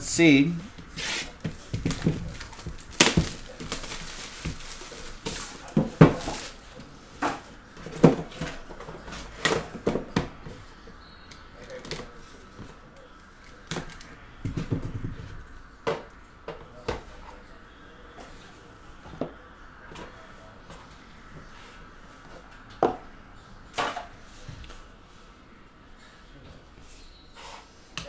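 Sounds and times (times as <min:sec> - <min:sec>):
cardboard scraping and rustling: 0:00.9 - 0:06.7.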